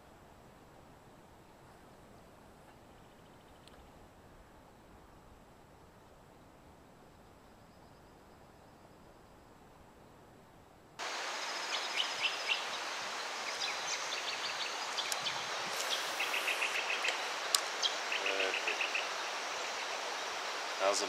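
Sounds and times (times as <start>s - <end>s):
birds chirping: 11.0s - 21.0s
river flowing over rocks: 11.0s - 21.0s.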